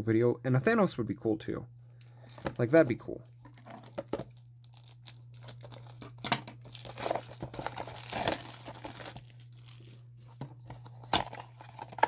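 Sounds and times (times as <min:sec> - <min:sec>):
foil wrapper crinkling and tearing: 0:02.1 - 0:10.2.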